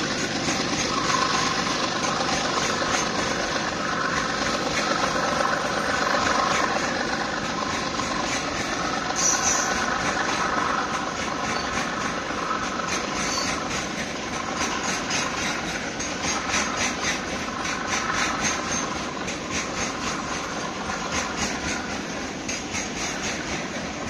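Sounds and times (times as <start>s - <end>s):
freight train wheels rumbling on rails: 0.0s - 24.0s
train wheels clacking: 0.0s - 24.0s.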